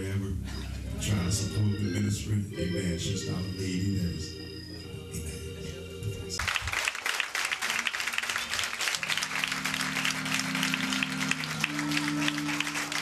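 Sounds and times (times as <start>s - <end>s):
held keyboard chords: 0.0s - 6.4s, 8.8s - 13.0s
congregation applauding: 6.4s - 13.0s.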